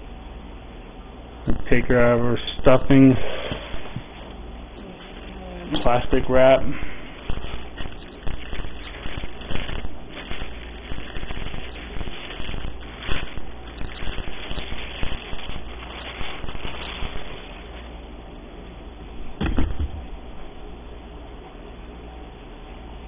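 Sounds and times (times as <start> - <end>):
plastic wrap crinkling: 3.6 - 18.0.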